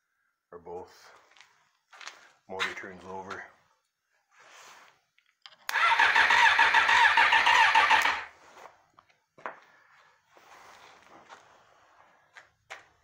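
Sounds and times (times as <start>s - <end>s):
electric starter cranking engine: 5.7s - 8.3s.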